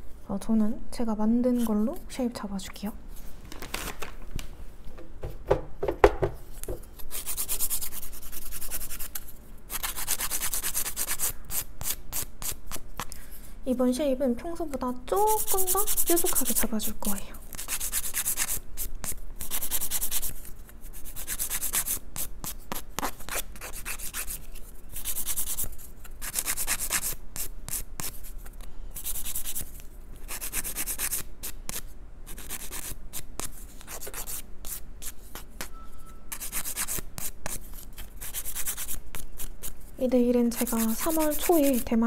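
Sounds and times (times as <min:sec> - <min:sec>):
nail file rasping: 0:07.1 - 0:13.1, 0:15.3 - 0:16.7, 0:17.5 - 0:28.2, 0:36.3 - 0:39.8, 0:40.5 - 0:41.9.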